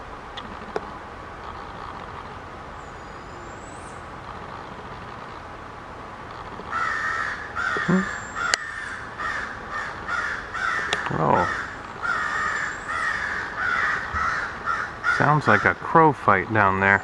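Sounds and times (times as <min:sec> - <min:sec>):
crows cawing harshly: 0:06.7 - 0:15.8.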